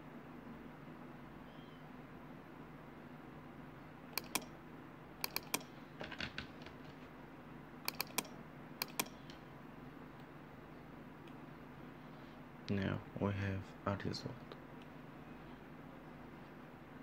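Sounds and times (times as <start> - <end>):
low steady hum: 0.0 - 17.0
computer control clicks: 4.2 - 4.6, 5.2 - 5.7, 7.8 - 9.2.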